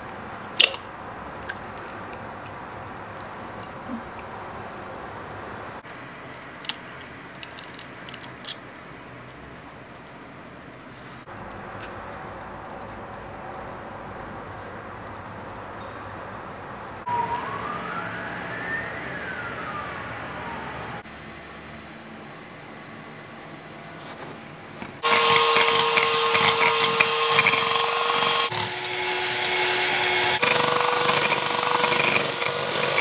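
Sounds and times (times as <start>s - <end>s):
eggshell cracking: 6.4s - 8.7s
slow rising and falling wail: 17.0s - 21.0s.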